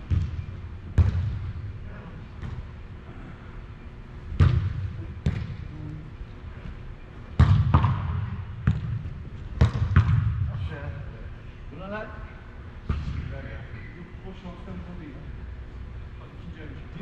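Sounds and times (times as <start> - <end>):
football kicks echoing in a hall: 0.0 - 3.5, 4.2 - 11.1, 12.8 - 13.9.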